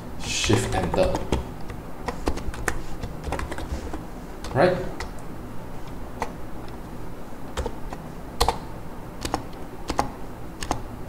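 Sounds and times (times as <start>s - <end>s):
keyboard key presses: 0.4s - 5.2s, 7.5s - 10.8s.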